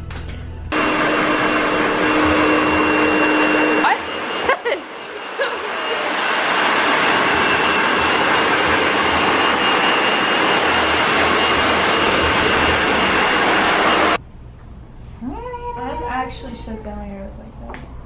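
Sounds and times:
hair dryers blowing with high whine: 0:00.7 - 0:14.2.

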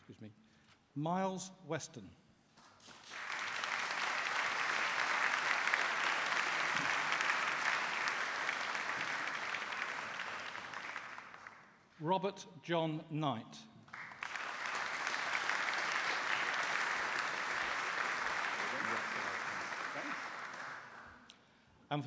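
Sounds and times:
audience applauding: 0:02.8 - 0:11.8, 0:13.9 - 0:21.3.

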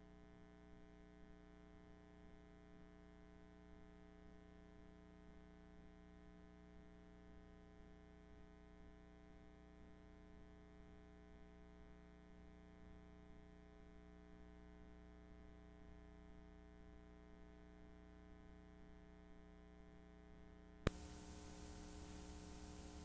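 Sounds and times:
low electrical hum: 0:19.9 - 0:23.0
sharp click: 0:20.9 - 0:23.0
tape hiss and static: 0:20.9 - 0:23.0.

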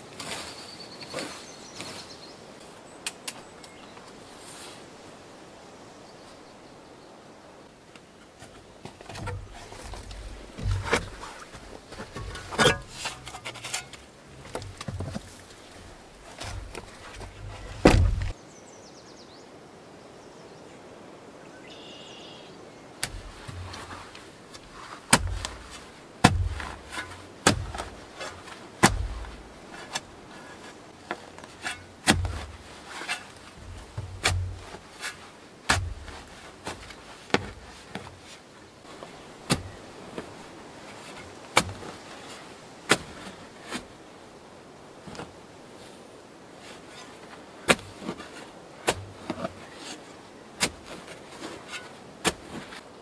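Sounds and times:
dirt scraping: 0:08.2 - 0:18.4, 0:23.0 - 0:44.0, 0:46.6 - 0:53.0
wooden gate knock: 0:16.4 - 0:18.3
shovel chopping into soil: 0:23.0 - 0:30.5, 0:31.4 - 0:38.1, 0:39.5 - 0:39.8, 0:41.6 - 0:41.9, 0:47.7 - 0:48.2, 0:48.8 - 0:50.0, 0:50.6 - 0:52.8.

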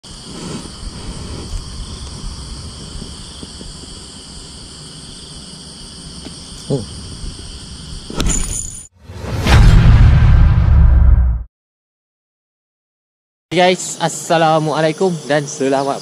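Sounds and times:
insects chorus: 0:00.0 - 0:08.9, 0:13.5 - 0:16.0
low rumble: 0:09.0 - 0:11.5
rush of noise: 0:09.0 - 0:11.5.

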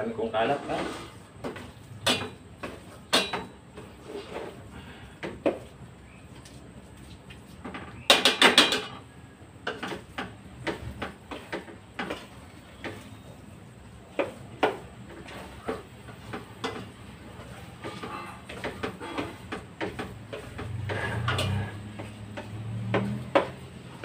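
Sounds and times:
metal spoon scraping a steel pot: 0:20.7 - 0:21.9.

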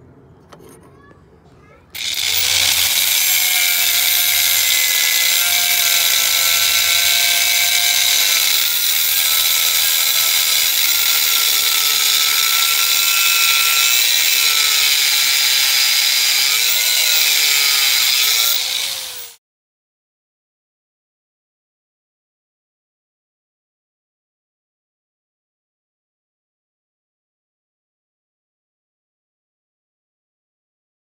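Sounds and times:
angle grinder cutting: 0:02.0 - 0:19.4.

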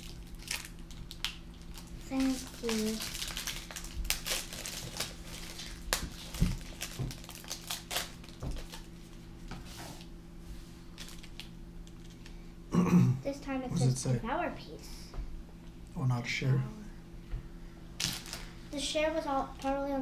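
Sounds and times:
wrapper crinkling and tearing: 0:00.0 - 0:09.2, 0:10.9 - 0:12.4, 0:18.0 - 0:18.6.

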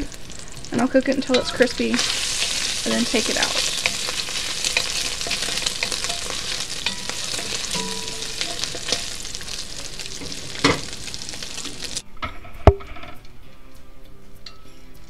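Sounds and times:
bacon sizzling in hot fat: 0:00.0 - 0:12.0
wooden spoon stirring: 0:01.3 - 0:12.0.

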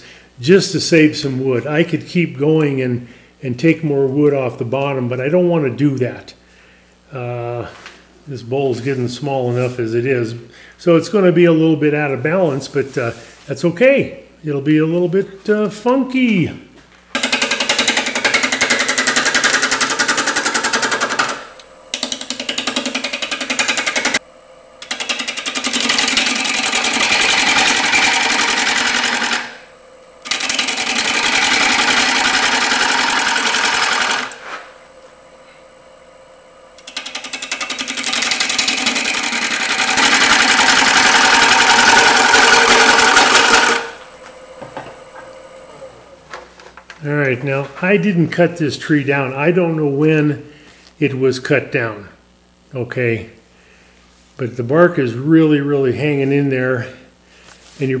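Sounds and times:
gouge chattering on spinning wood: 0:17.2 - 0:21.4, 0:24.9 - 0:29.6, 0:30.2 - 0:34.3, 0:36.9 - 0:43.9
lathe high whine: 0:17.2 - 0:47.1.

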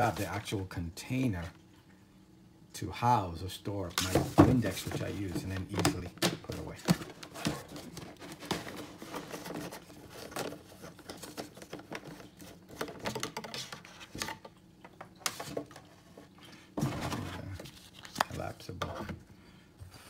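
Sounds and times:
plastic bottles clicking and knocking: 0:04.0 - 0:15.8.

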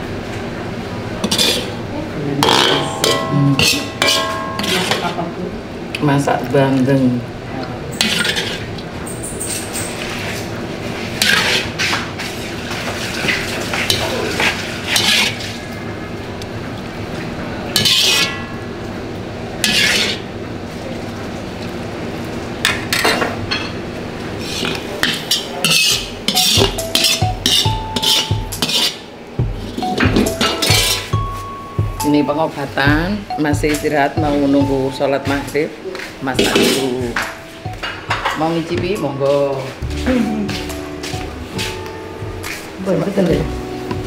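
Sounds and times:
metal ladle scraping a wok: 0:01.2 - 0:01.8, 0:02.4 - 0:05.2, 0:08.0 - 0:08.7, 0:11.1 - 0:12.0, 0:13.9 - 0:15.6, 0:17.8 - 0:18.4, 0:19.6 - 0:20.3, 0:24.4 - 0:29.1, 0:30.6 - 0:31.1
background music with a beat: 0:26.4 - 0:28.6, 0:29.4 - 0:32.2, 0:32.9 - 0:35.6, 0:37.0 - 0:44.0.

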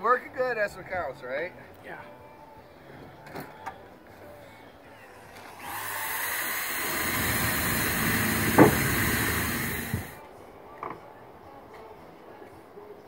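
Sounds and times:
cordless drill drilling: 0:05.4 - 0:10.2.

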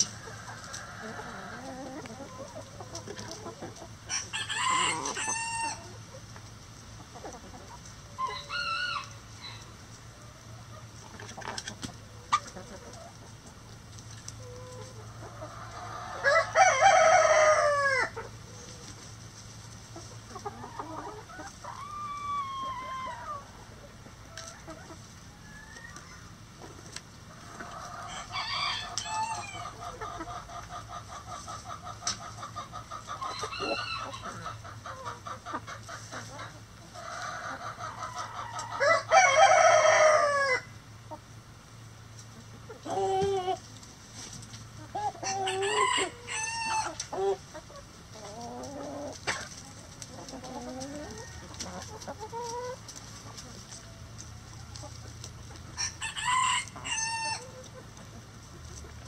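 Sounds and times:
hens clucking: 0:00.0 - 0:59.0
rooster crowing: 0:04.1 - 0:05.9, 0:08.2 - 0:09.7, 0:15.8 - 0:18.1, 0:28.0 - 0:29.8, 0:38.3 - 0:40.7, 0:45.2 - 0:47.0, 0:55.8 - 0:57.5.

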